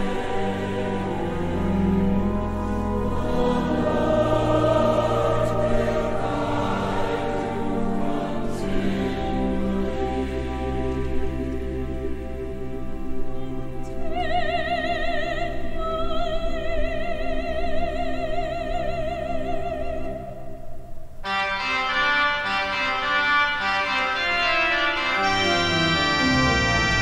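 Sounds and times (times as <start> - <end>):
pipe organ: 0.0 - 14.4, 21.2 - 27.0
choir singing: 0.0 - 20.3, 21.4 - 27.0.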